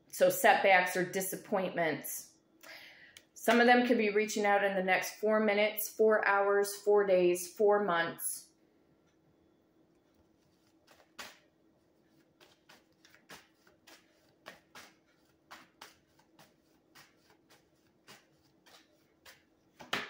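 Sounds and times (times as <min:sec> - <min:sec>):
cards being shuffled: 0:10.0 - 0:20.0.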